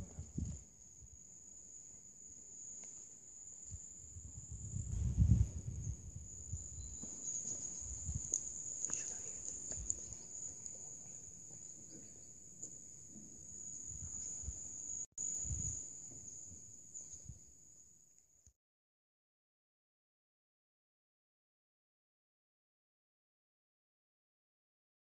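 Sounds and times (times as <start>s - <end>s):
crickets chirping: 0.0s - 18.2s.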